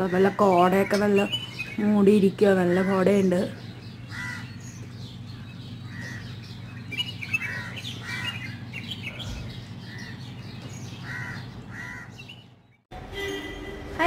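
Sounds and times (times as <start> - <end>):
steady low hum: 0.0 - 12.7
small birds chirping: 0.0 - 12.9
crows cawing: 4.0 - 4.7, 5.4 - 6.6, 7.2 - 10.3, 11.0 - 12.3.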